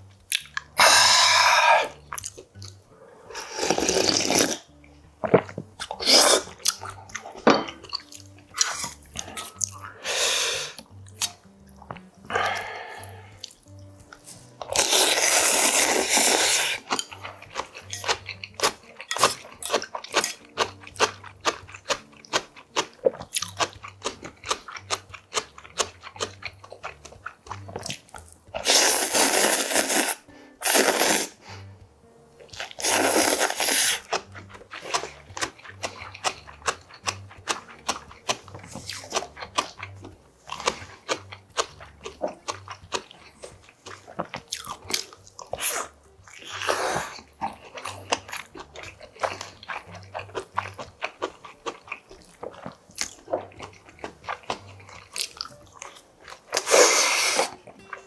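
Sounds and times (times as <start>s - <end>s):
crunchy chewing: 0.3s - 9.8s, 10.7s - 31.3s, 32.4s - 58.0s
person slurping noodles: 0.8s - 2.0s, 3.1s - 4.7s, 5.3s - 7.0s, 8.6s - 10.8s, 14.7s - 16.9s, 28.6s - 31.4s, 32.6s - 34.2s, 45.6s - 48.2s, 56.5s - 57.6s.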